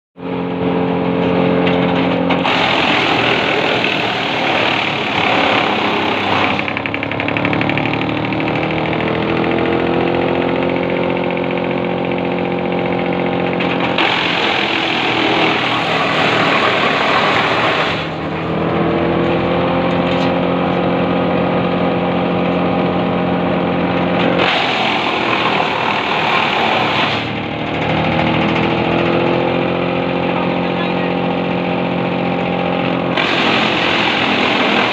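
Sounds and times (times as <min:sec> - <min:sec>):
wood chipper humming: 0:00.2 - 0:34.9
chipper chewing wooden poles: 0:02.4 - 0:18.5, 0:24.1 - 0:29.4, 0:33.1 - 0:34.9.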